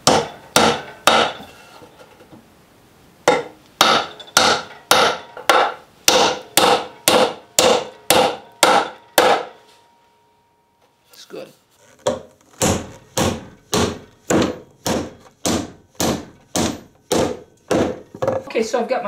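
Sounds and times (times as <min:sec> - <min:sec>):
hammer striking nail into wood: 0:00.0 - 0:01.4, 0:03.3 - 0:09.6, 0:12.1 - 0:18.1.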